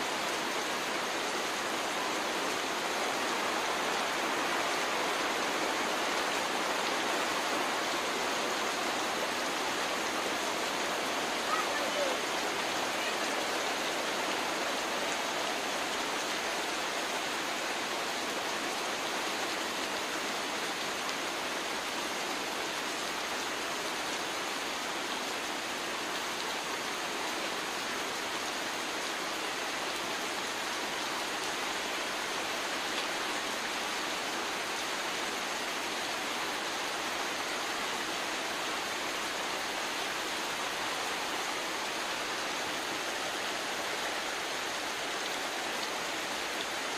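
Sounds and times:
heavy rain on leaves and water: 0.0s - 46.9s.

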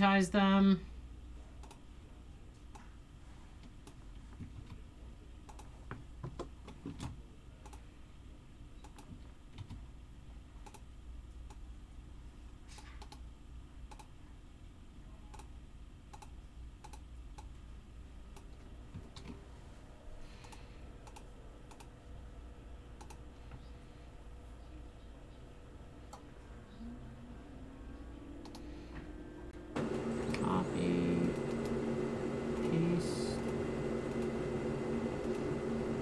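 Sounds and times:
low steady hum: 0.0s - 36.0s
keyboard and mouse clicks: 1.6s - 1.8s, 5.4s - 7.8s, 8.8s - 9.8s, 10.6s - 11.6s, 12.7s - 13.3s, 13.9s - 14.1s, 16.1s - 17.5s, 20.4s - 21.9s, 23.0s - 23.2s, 28.4s - 28.7s.

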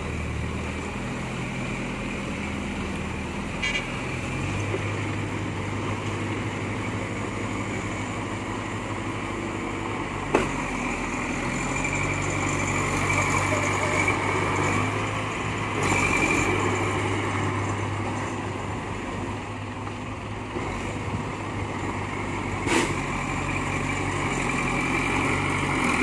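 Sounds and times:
diesel engines running: 0.0s - 26.0s.

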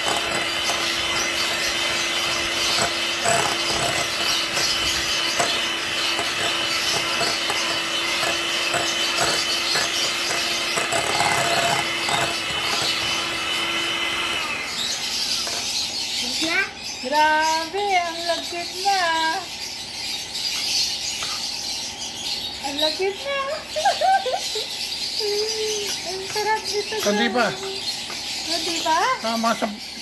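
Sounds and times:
mixture being beaten: 0.0s - 15.8s.

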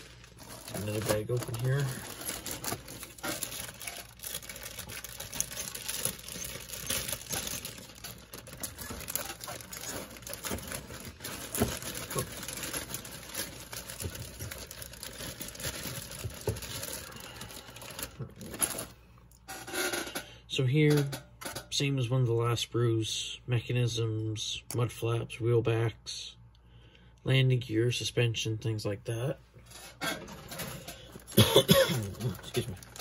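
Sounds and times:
plastic bag crinkling: 0.0s - 19.0s, 30.3s - 33.0s.

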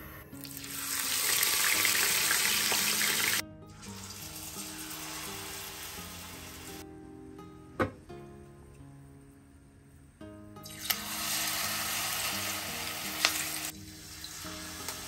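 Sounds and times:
soft background music: 0.0s - 15.0s
hot oil sizzling: 0.4s - 6.8s, 10.6s - 15.0s.

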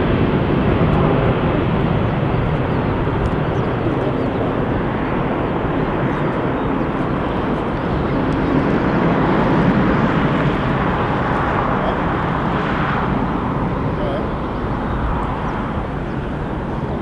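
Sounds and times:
jet engine noise: 0.0s - 17.0s.

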